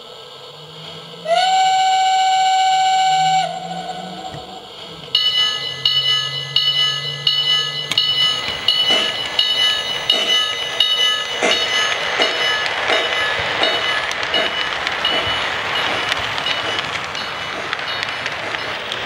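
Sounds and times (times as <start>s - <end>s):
steam chuffing: 0.0s - 19.0s
steam whistle blast: 1.2s - 4.6s
bell ringing: 5.2s - 18.9s.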